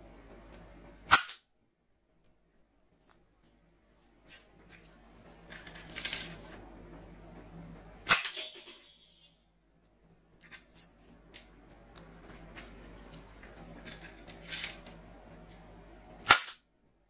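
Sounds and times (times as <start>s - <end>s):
toy bow snapping: 1.1s - 1.4s, 8.1s - 8.8s, 16.2s - 16.6s
plastic scraping and rustling: 4.2s - 6.7s, 10.4s - 15.0s.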